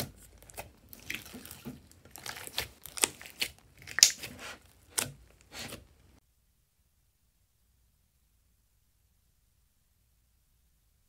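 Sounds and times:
slime squishing and popping: 0.0 - 5.3.

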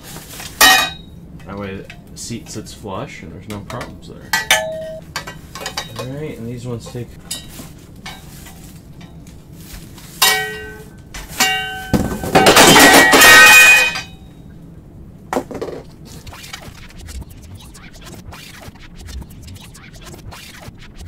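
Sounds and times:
loud metal clatter: 11.4 - 14.2.

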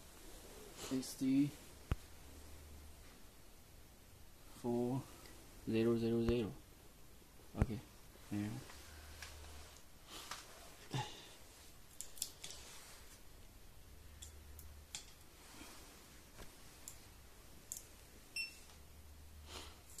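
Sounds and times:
hands handling cables and plugs: 11.9 - 13.2.

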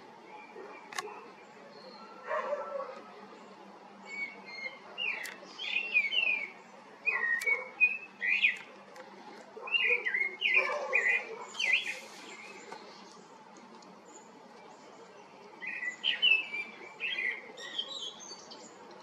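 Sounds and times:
birds chirping and whistling: 4.0 - 8.7, 9.6 - 13.0, 15.6 - 18.7.

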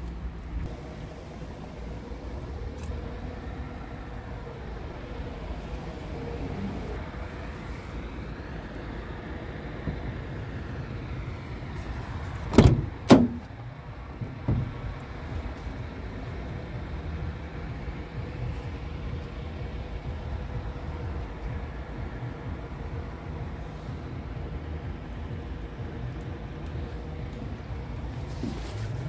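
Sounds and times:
truck door latch clunks: 12.4 - 15.0.

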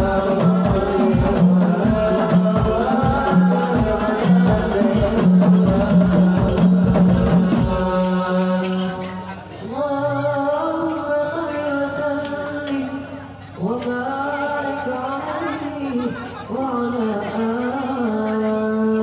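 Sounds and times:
frame drums beating: 0.0 - 8.8.

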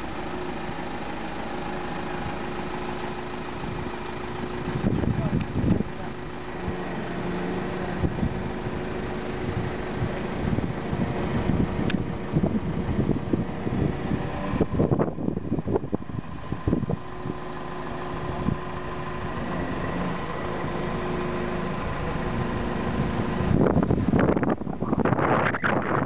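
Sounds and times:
diesel engine humming: 0.0 - 26.0
wind buffeting microphone: 3.6 - 6.8, 8.0 - 19.5, 21.6 - 26.0.

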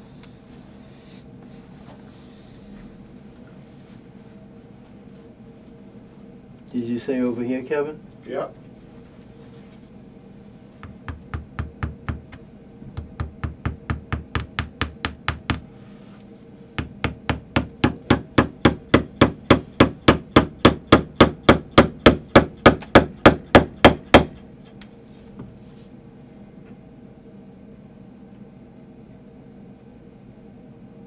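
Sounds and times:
tack hammer tapping: 10.8 - 12.4, 13.0 - 15.6, 16.8 - 24.4.

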